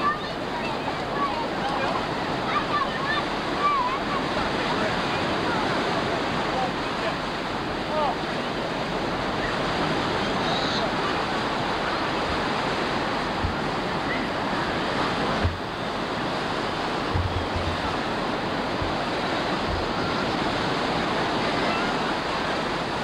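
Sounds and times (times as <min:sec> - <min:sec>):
ocean surf breaking: 0:00.0 - 0:23.0
low thumps: 0:17.0 - 0:18.0, 0:18.7 - 0:20.1.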